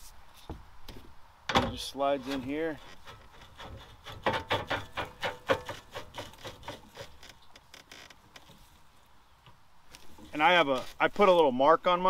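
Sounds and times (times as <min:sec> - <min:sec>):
metal scraping and clicking: 0:02.2 - 0:08.6.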